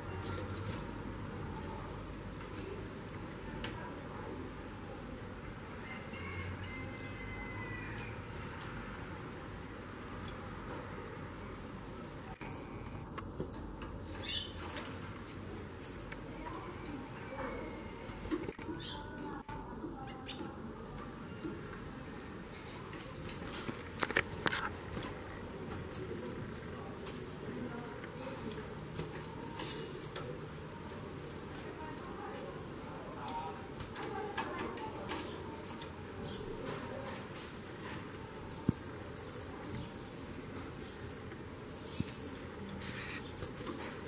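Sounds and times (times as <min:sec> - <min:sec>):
bird chirping calls: 0:02.5 - 0:03.2, 0:14.1 - 0:14.7, 0:17.2 - 0:20.6, 0:28.1 - 0:28.6, 0:38.5 - 0:44.0.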